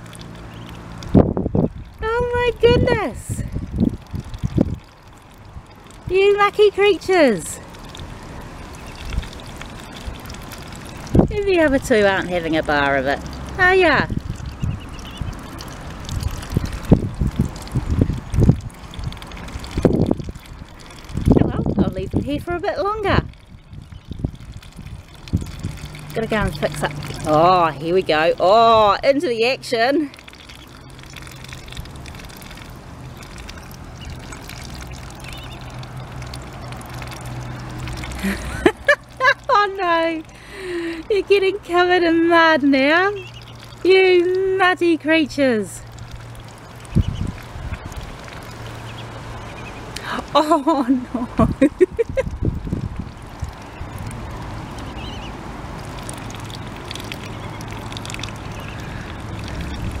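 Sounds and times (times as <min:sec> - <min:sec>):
ducklings dabbling in wet mud: 0:00.0 - 1:00.0
duckling peep: 0:08.7 - 0:10.4, 0:14.3 - 0:15.5, 0:30.3 - 0:32.6, 0:33.2 - 0:36.2, 0:43.1 - 0:43.8, 0:46.8 - 0:47.4, 0:48.9 - 0:49.8, 0:54.7 - 0:55.3, 0:56.1 - 0:59.2.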